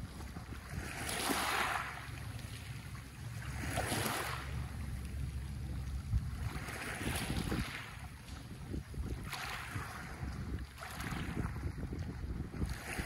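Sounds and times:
waves washing on pebbles: 0.0s - 2.4s, 3.3s - 4.6s, 6.2s - 8.4s, 9.1s - 11.8s, 12.6s - 13.0s
low steady rumble: 0.0s - 13.0s.

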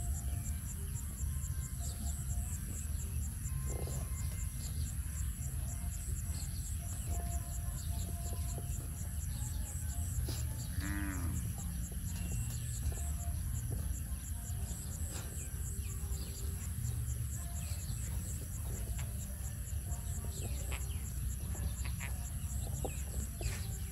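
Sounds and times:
faint insect chirping: 0.0s - 23.9s
cow mooing: 10.7s - 11.6s.

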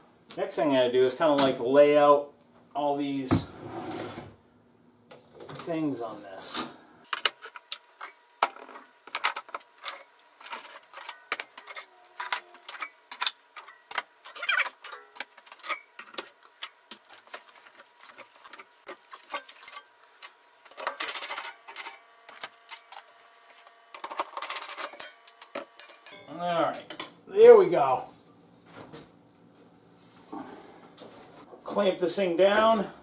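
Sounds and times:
metal discs clinking: 7.7s - 16.8s, 24.0s - 27.1s.

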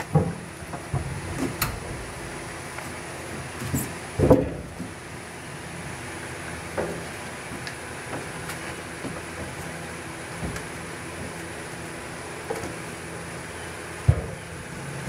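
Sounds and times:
steady background hum: 0.0s - 15.0s
metal tank bumping into hull: 0.2s - 5.0s.

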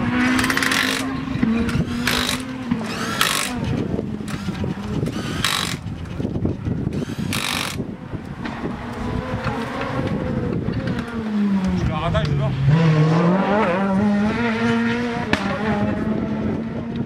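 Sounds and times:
power tool bursts: 0.3s - 1.1s, 1.7s - 3.7s, 4.3s - 5.8s, 6.9s - 7.8s.

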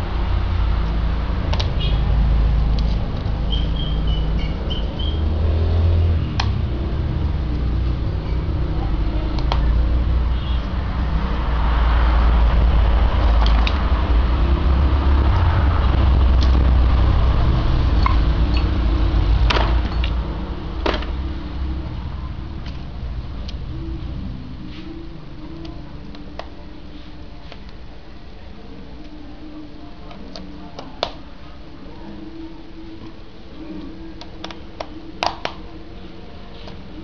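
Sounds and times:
low rumble: 0.0s - 25.0s.

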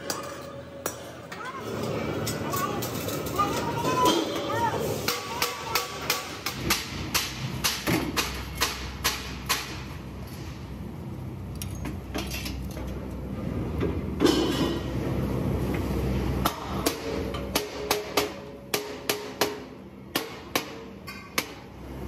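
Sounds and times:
metal cylinders clanking: 0.0s - 10.4s, 13.8s - 15.2s.

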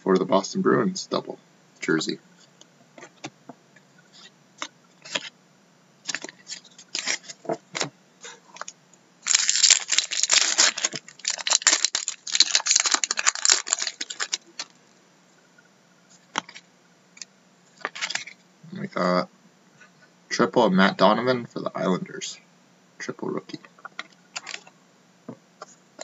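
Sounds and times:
foil card pack tearing and crinkling: 6.1s - 7.9s, 9.2s - 14.8s, 17.8s - 18.3s.

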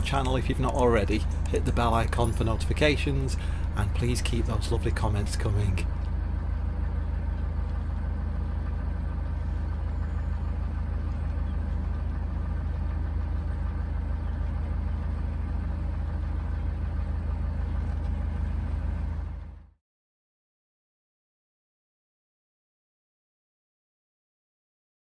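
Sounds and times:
boat diesel engine droning: 0.0s - 19.8s.

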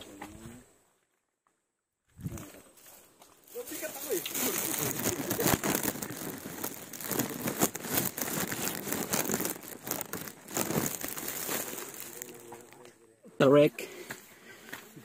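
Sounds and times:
microphone rustling and crackling: 2.1s - 2.6s, 3.7s - 12.7s.

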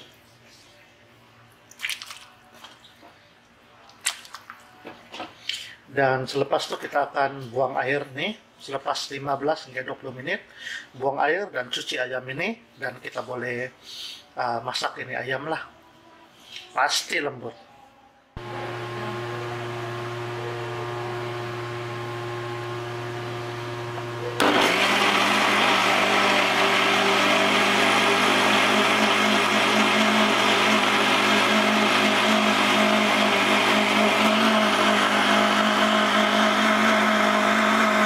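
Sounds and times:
electric blender running: 18.4s - 38.0s.

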